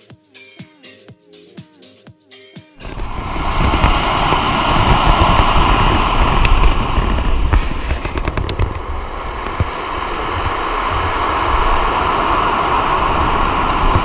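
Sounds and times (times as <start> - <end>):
surf breaking on pebble beach: 2.8 - 14.0
wind buffeting microphone: 2.8 - 14.0.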